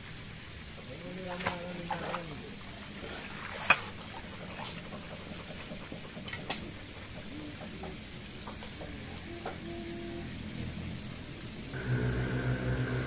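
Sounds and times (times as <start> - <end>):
water splashing and dripping: 0.0 - 9.8
low steady hum: 7.3 - 13.0.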